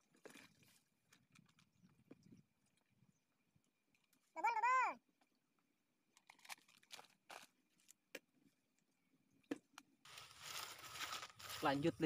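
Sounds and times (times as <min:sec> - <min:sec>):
rustling in tall grass: 0:10.1 - 0:12.0.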